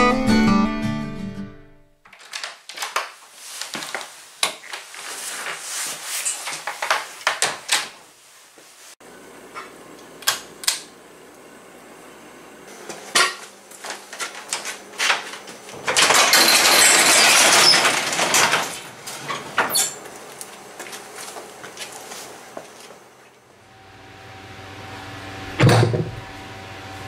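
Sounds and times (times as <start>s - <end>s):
knocks and clatters: 14.2s - 20.0s, 25.6s - 26.2s
garage door rollers rattling: 14.5s - 20.0s.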